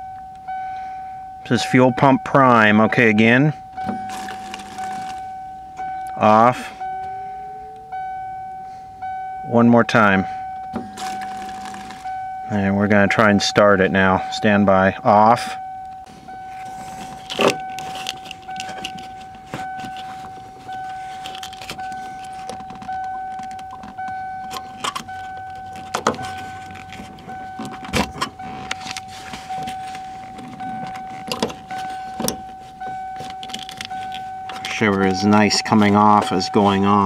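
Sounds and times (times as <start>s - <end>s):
vehicle warning chime beeping: 0.0s - 37.0s
clicks and knocks of metal fittings: 33.2s - 35.0s.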